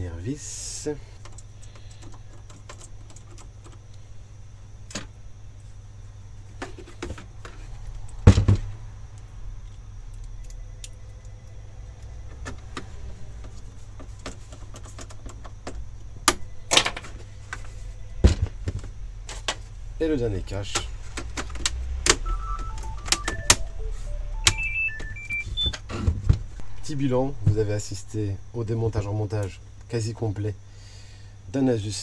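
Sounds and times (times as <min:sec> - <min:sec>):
steady low hum: 0:22.2 - 0:31.9.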